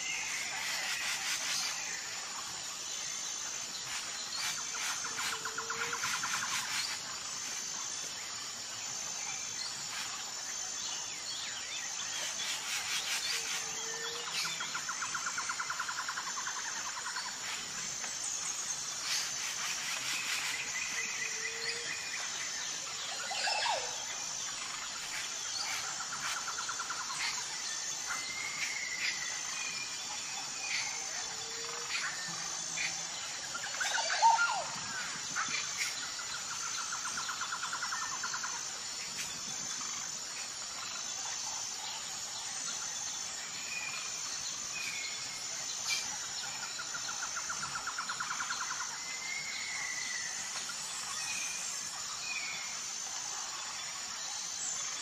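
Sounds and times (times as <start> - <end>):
high insect chirp: 0.0 - 55.0
birds calling with trills: 18.4 - 38.2.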